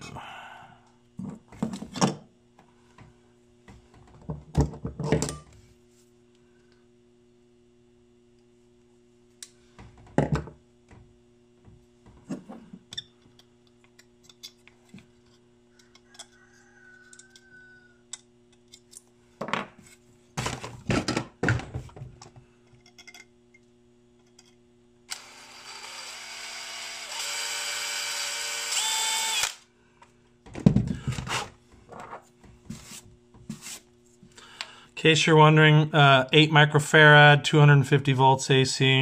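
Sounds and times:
steady low hum: 0.0s - 16.4s
motor whirring: 25.1s - 29.6s.

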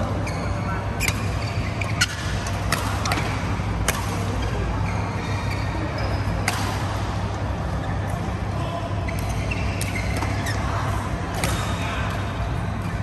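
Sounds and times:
steady low hum: 0.0s - 13.0s
shoes squeaking on court: 0.1s - 3.2s, 4.4s - 6.5s, 9.0s - 11.8s
rackets hitting shuttlecock: 1.9s - 4.6s, 6.4s - 7.0s, 9.1s - 13.0s.

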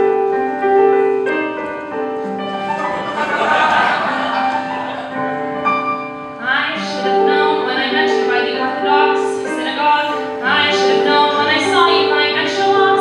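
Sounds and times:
piano accompaniment: 0.0s - 13.0s
woman singing: 6.4s - 13.0s.

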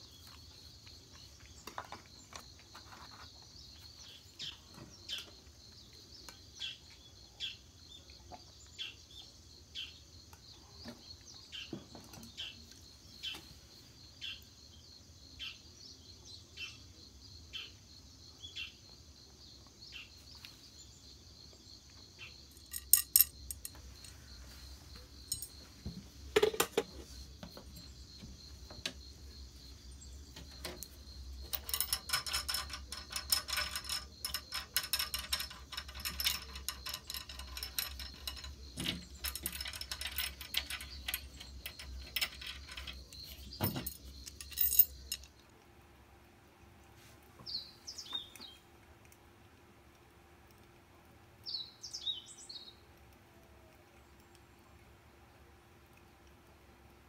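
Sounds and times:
metal tableware clinking: 22.6s - 23.8s, 25.3s - 25.5s, 31.5s - 45.3s.

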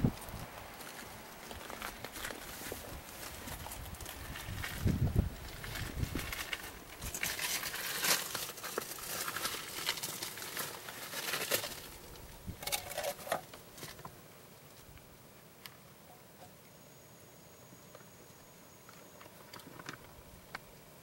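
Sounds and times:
rustling and crackling: 0.0s - 15.1s.

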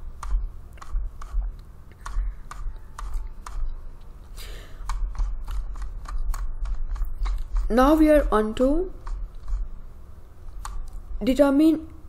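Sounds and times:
steady low hum: 0.0s - 12.0s
mouse and keyboard clicks: 0.2s - 3.7s, 4.8s - 7.7s, 10.6s - 11.0s.

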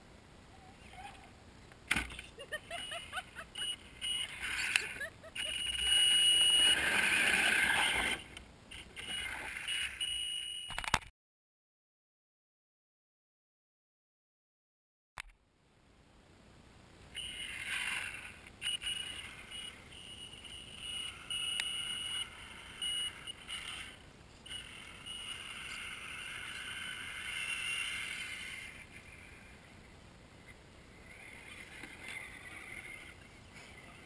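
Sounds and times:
electric motor and drivetrain whining: 17.2s - 28.9s.

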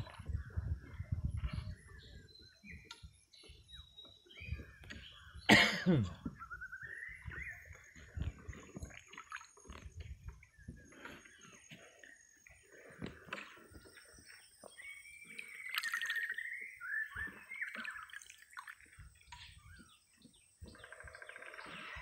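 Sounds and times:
bird chirps: 0.0s - 22.0s.

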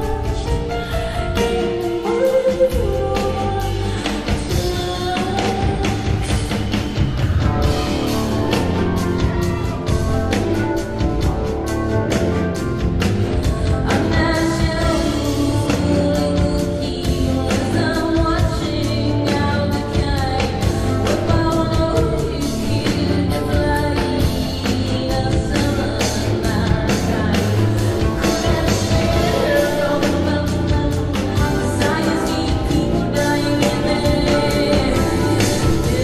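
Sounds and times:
bass: 0.0s - 36.0s
woman singing: 0.0s - 36.0s
drum beat: 4.2s - 17.5s, 26.4s - 36.0s.

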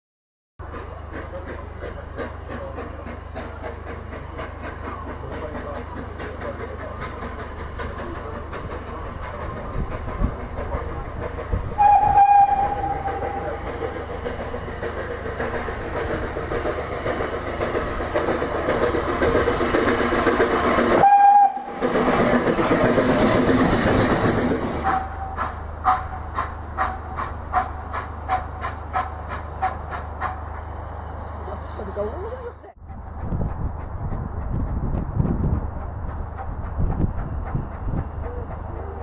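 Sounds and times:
steam engine hiss and rumble: 0.6s - 39.0s
steam locomotive exhaust chuffing: 0.6s - 39.0s
steam locomotive whistle toot: 11.7s - 13.7s, 20.9s - 22.1s, 24.8s - 26.2s.

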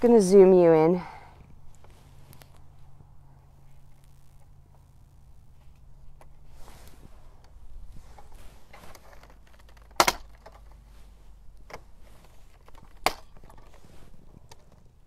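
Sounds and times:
faint low hum: 0.0s - 15.0s
camera handling clicks and knocks: 8.9s - 10.8s, 11.6s - 13.8s.

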